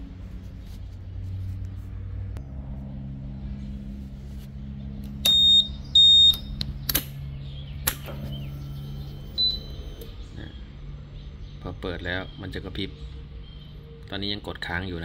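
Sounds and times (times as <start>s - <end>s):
low steady hum: 0.0s - 15.0s
sharp click: 6.3s - 7.2s, 7.8s - 8.4s.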